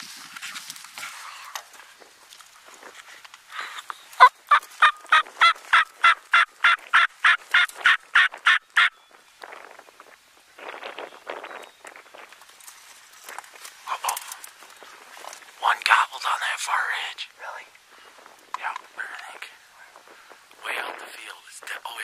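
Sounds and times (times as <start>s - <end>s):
turkey call yelps: 4.2s - 9.0s
clothing and brush rustling: 12.1s - 15.6s.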